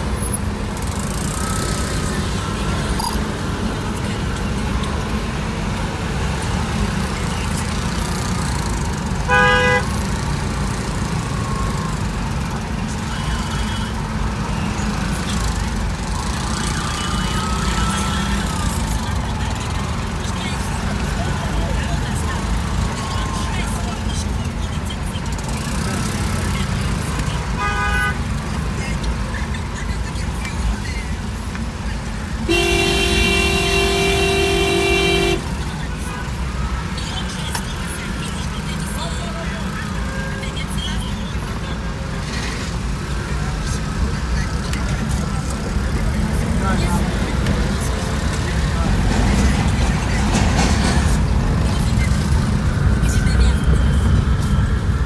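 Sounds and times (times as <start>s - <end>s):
city traffic rumble: 0.0s - 55.0s
vehicle horn beep: 9.2s - 10.0s, 27.6s - 28.2s, 32.5s - 35.6s.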